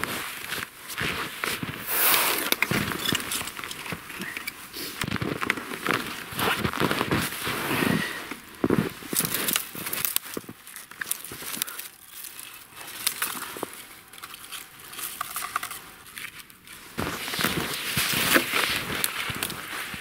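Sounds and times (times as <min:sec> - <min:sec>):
cloth rustling and crinkling: 0:00.0 - 0:20.0
gloved hands brushing clothing: 0:01.2 - 0:05.0.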